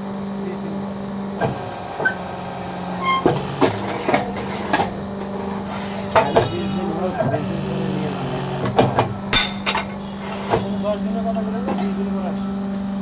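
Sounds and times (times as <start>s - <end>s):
brick press motor humming: 0.0s - 13.0s
short high squeal: 2.9s - 3.4s.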